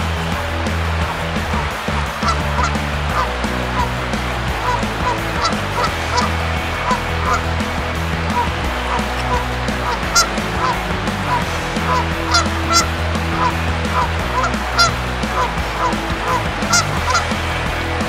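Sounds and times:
sustained bass notes: 0:00.0 - 0:18.0.

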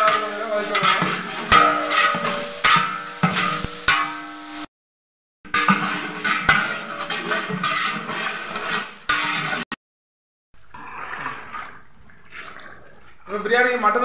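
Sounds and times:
metal ladle scraping a pot: 0:00.0 - 0:04.7, 0:05.5 - 0:09.8, 0:10.6 - 0:13.4
onions frying in oil: 0:00.0 - 0:04.7, 0:05.5 - 0:09.6.

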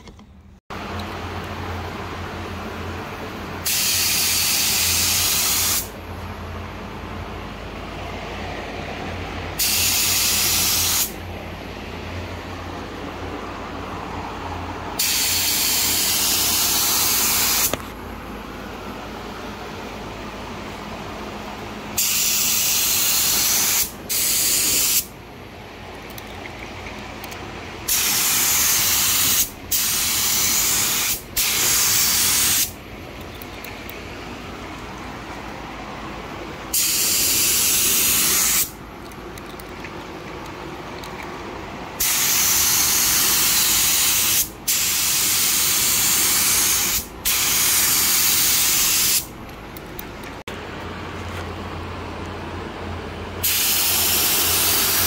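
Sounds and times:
spray gun hissing: 0:03.6 - 0:05.9, 0:09.6 - 0:11.2, 0:15.0 - 0:17.7, 0:22.0 - 0:25.1, 0:27.9 - 0:32.8, 0:36.7 - 0:38.8, 0:42.0 - 0:49.4, 0:53.4 - 0:55.0.

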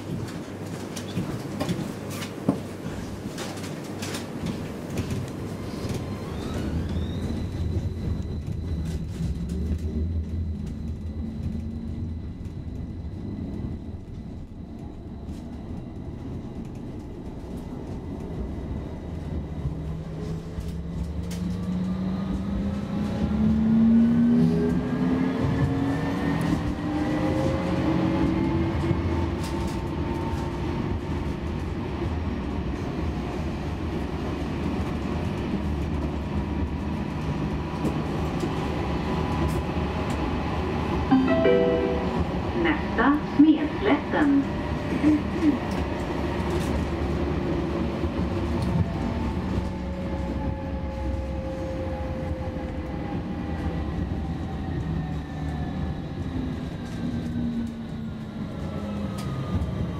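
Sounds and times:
tram rumbling on rails: 0:00.0 - 0:59.9
tram drive whine rising: 0:04.8 - 0:29.8.

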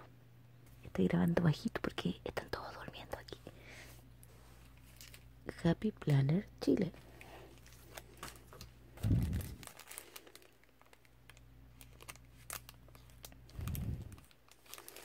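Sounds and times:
plastic packaging crinkling: 0:04.7 - 0:05.3, 0:07.0 - 0:15.0
dull low thumps: 0:09.0 - 0:09.6.

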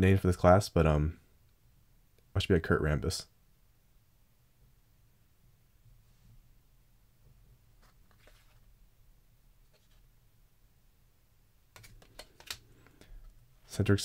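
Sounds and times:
cards rubbing in hands: 0:07.8 - 0:08.7
sharp card clicks: 0:11.8 - 0:13.0.

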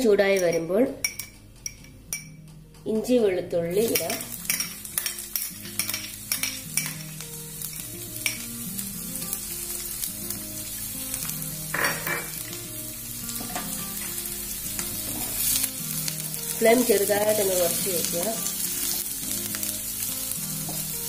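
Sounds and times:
spoon clinking against bowl: 0:00.3 - 0:02.4, 0:03.9 - 0:07.0
garlic sizzling in hot oil: 0:03.7 - 0:21.0.

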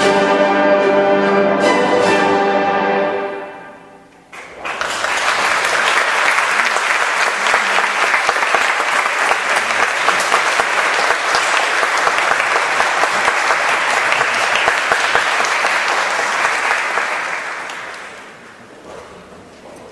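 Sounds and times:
audience applauding: 0:04.3 - 0:18.6.

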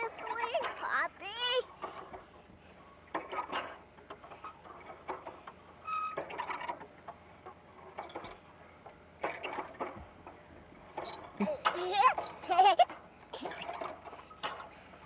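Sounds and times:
swing chains clinking and squeaking: 0:00.0 - 0:15.0.

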